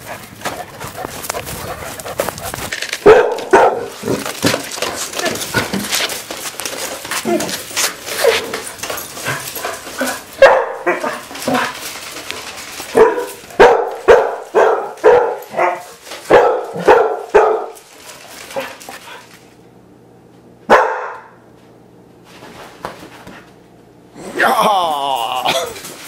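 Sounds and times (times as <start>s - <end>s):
dogs barking: 0.0s - 4.6s, 9.2s - 11.8s, 12.7s - 17.9s, 20.7s - 21.4s.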